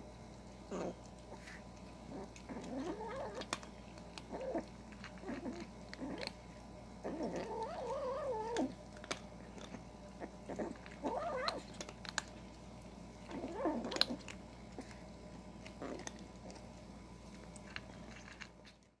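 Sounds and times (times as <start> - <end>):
kibble crunching: 0.3 - 19.0
kitten growling: 0.7 - 6.4, 7.0 - 12.3, 13.2 - 15.0, 15.7 - 16.6.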